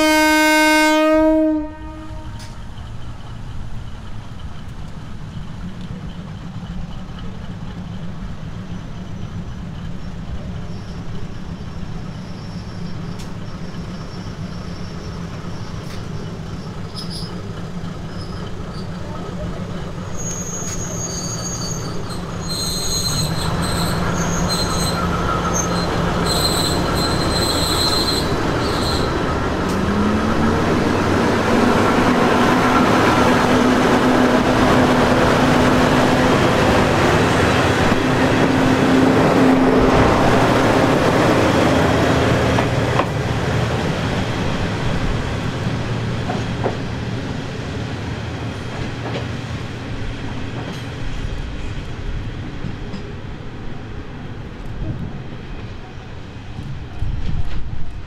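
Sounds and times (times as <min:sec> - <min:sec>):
diesel train running by: 0:00.0 - 0:58.0
high-pitched squeals: 0:20.1 - 0:41.9.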